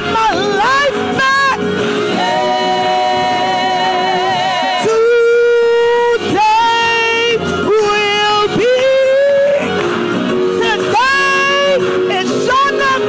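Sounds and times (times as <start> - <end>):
woman singing gospel song: 0.2 - 5.6.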